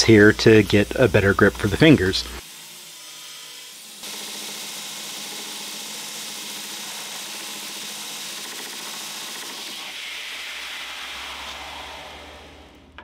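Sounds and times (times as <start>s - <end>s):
belt grinder grinding steel: 0.0s - 10.0s.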